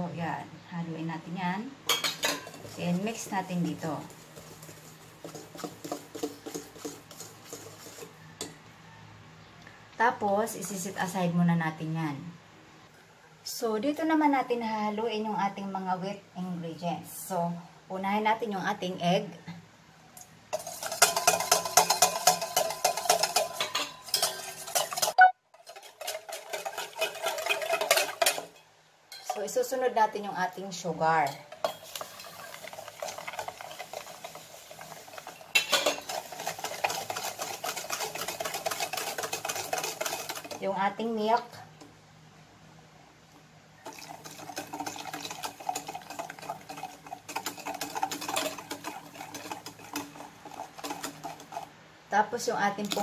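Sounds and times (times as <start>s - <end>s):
whisk clicking against metal bowl: 4.6s - 8.1s, 20.6s - 29.3s, 32.7s - 40.6s, 43.9s - 51.7s.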